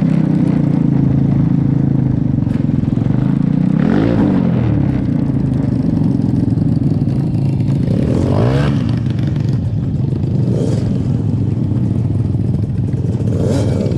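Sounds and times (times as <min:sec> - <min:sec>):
kart engine revving: 0:02.2 - 0:11.7
kart rattling over grass: 0:05.0 - 0:13.9.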